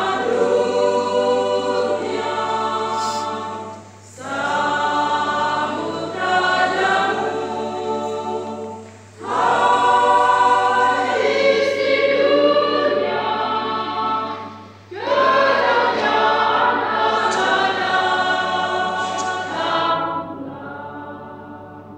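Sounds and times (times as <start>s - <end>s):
women's choir singing a hymn: 0.0s - 21.9s
singers breathing: 2.9s - 4.0s.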